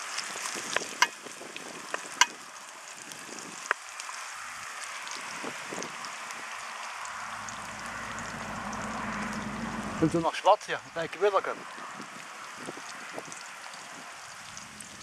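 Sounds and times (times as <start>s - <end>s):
onions sizzling in oil: 0.0s - 15.0s
low rumble: 7.2s - 10.3s.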